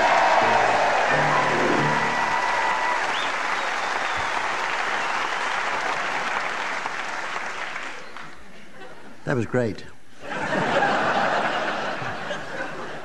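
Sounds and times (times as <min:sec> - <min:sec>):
held music note: 0:00.0 - 0:02.9
audience applauding: 0:00.0 - 0:08.4.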